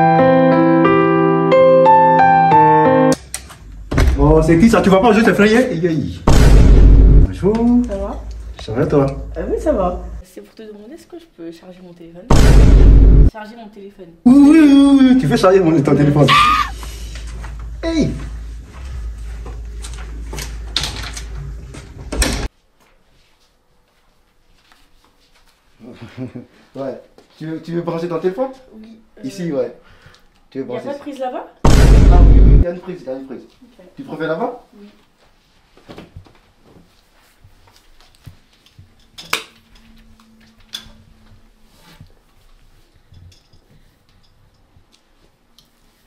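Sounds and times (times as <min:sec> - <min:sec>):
door clicks and knocks: 0:03.2 - 0:04.3
steady low hum: 0:06.2 - 0:10.2, 0:16.8 - 0:22.4, 0:31.7 - 0:32.6.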